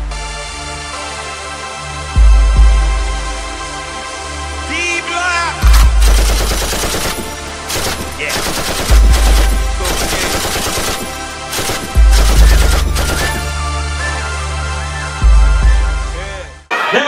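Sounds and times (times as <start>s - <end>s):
deep bass hits: 5.6s - 6.2s
machine-gun fire sound effects: 5.6s - 13.6s.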